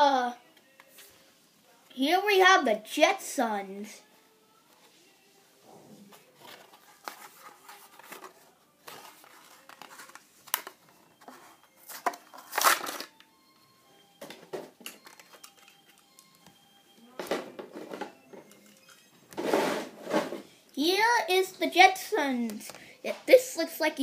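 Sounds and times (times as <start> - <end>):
plastic packaging crinkling and tearing: 11.9 - 13.2.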